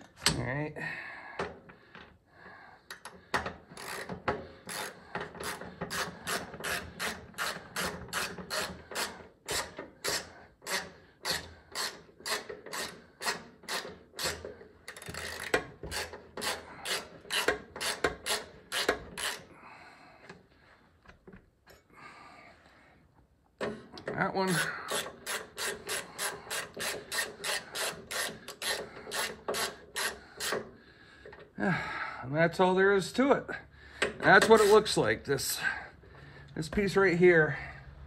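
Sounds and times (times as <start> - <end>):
socket ratchet clicking: 2.9 - 19.4.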